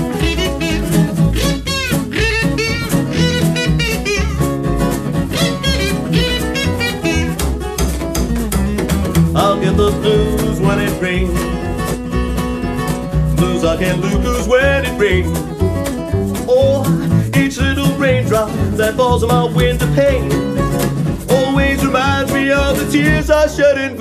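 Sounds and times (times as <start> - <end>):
harmonica lead: 0.0 - 23.1
acoustic guitar rhythm: 0.0 - 24.0
bass line: 0.0 - 24.0.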